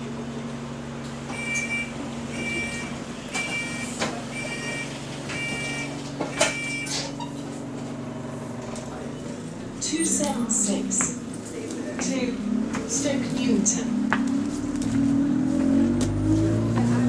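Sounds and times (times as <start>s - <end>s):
bus engine idling: 0.0s - 17.0s
electronic warning beeps: 1.3s - 7.4s.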